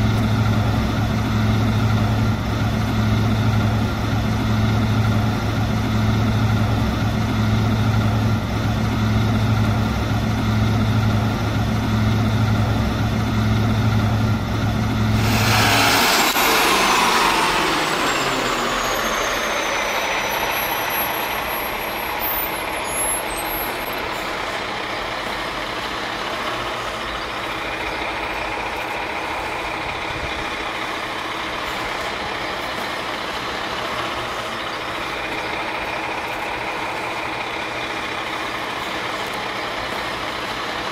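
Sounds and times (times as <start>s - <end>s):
diesel engine idling: 0.0s - 40.9s
loud air release hiss: 15.2s - 19.8s.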